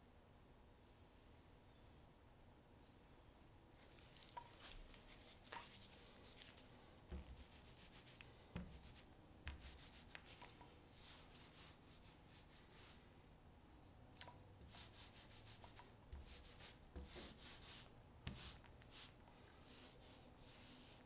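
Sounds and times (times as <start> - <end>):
paint roller rubbing swish: 4.2 - 13.0, 14.6 - 21.0.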